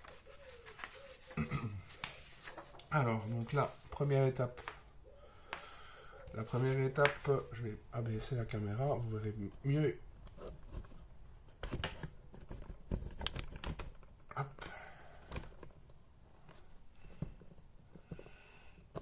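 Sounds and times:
paper rustling: 0:00.0 - 0:04.9, 0:06.4 - 0:07.7.

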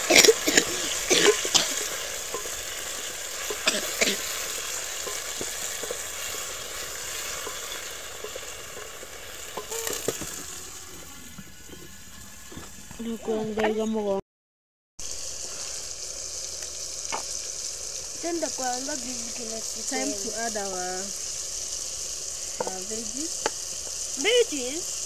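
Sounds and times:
vegetables sizzling in hot oil: 0:00.0 - 0:14.2, 0:15.0 - 0:25.0
wooden spoon scraping a pot: 0:00.2 - 0:12.9.

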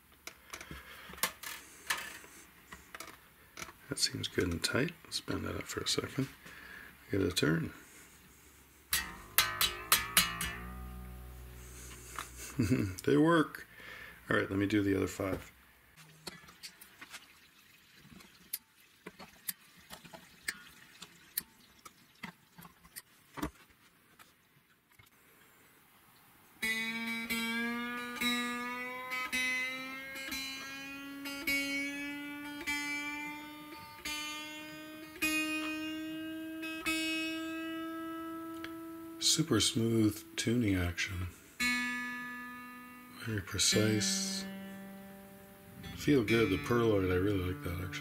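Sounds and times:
guitar string plucked rising pitch: 0:08.9 - 0:13.0, 0:26.6 - 0:41.0, 0:41.6 - 0:48.0.

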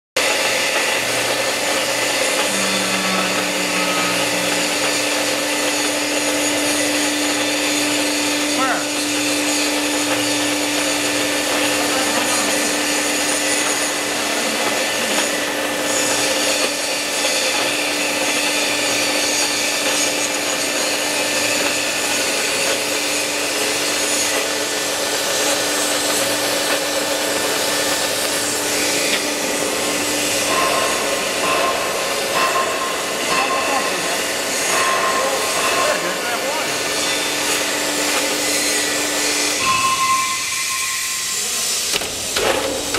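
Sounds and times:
machinery hissing: 0:00.2 - 0:17.4, 0:23.6 - 0:42.9
constant hum: 0:01.5 - 0:08.5.

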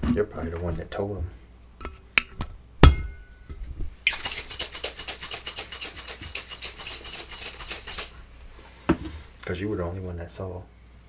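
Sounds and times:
cocktail shaker rattling: 0:04.1 - 0:08.2.

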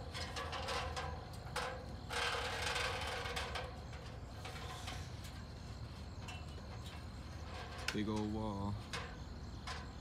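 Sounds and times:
ladder rattling and scraping: 0:00.0 - 0:10.0.

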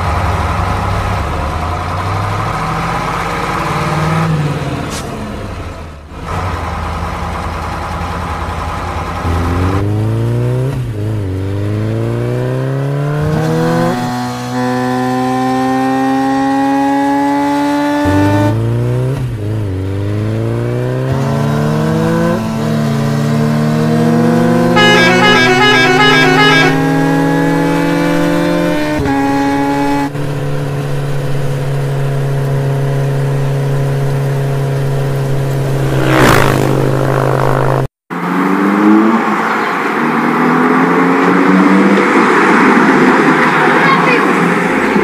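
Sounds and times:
engine revving: 0:09.0 - 0:39.5
quick whoosh: 0:35.7 - 0:37.4.

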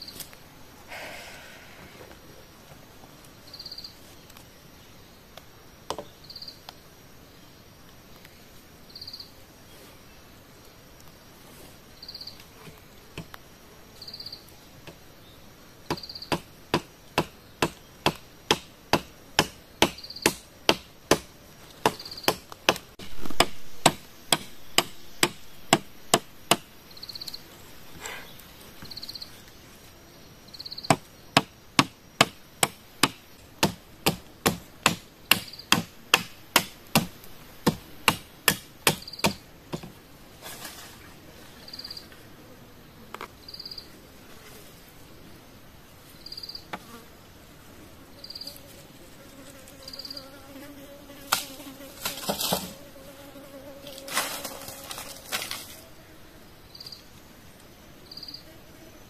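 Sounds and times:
insect chirping: 0:00.0 - 0:59.0
machete chopping bamboo: 0:15.9 - 0:26.7, 0:30.9 - 0:39.9.

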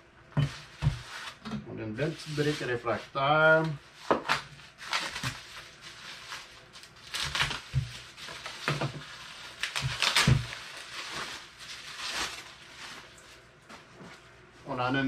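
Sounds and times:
plastic bag crinkling: 0:04.6 - 0:13.4.

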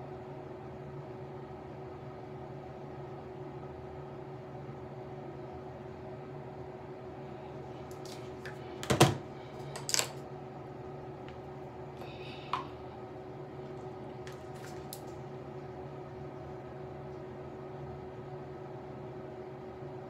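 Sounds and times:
room hum: 0:00.0 - 0:20.0.

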